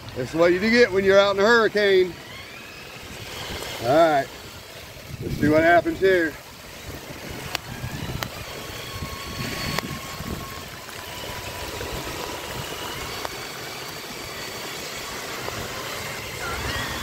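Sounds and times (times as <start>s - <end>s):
electric motors whining: 0.0s - 17.0s
rain: 0.0s - 17.0s
rushing floodwater: 0.0s - 17.0s
wind buffeting microphone: 2.9s - 17.0s.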